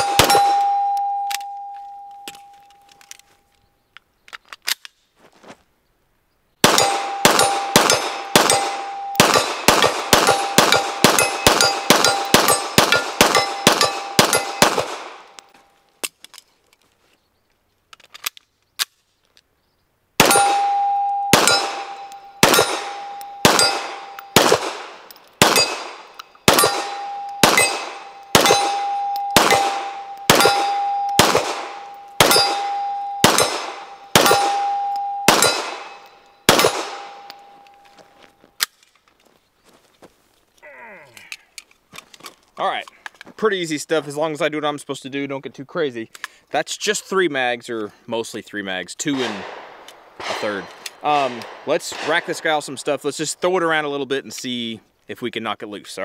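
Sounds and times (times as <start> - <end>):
pistol shots: 0.0 - 0.8, 6.6 - 15.4, 20.2 - 37.4, 49.1 - 52.8
steel plate ringing: 0.0 - 2.6, 6.8 - 14.7, 20.2 - 24.4, 25.5 - 37.8.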